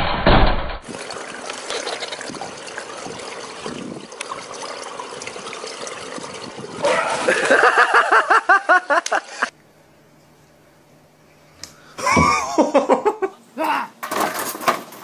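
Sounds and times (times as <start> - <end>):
pool water trickling and lapping: 0.8 - 11.5.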